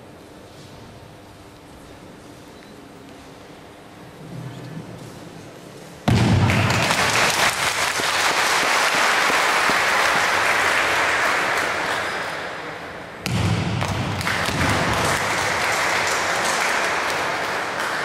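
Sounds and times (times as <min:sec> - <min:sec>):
audience applauding: 0:06.4 - 0:12.7, 0:14.1 - 0:18.0.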